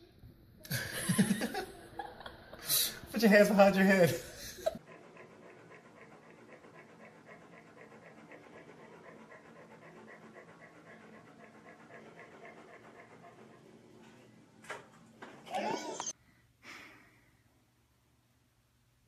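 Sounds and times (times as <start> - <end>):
animal panting: 2.9 - 14.7.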